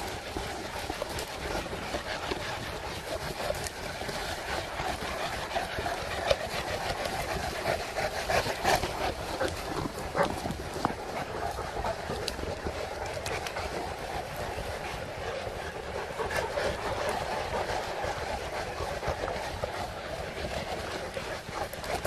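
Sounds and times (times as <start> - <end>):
outdoor background noise: 0.0 - 22.0
paws clicking on pavement: 0.0 - 22.0.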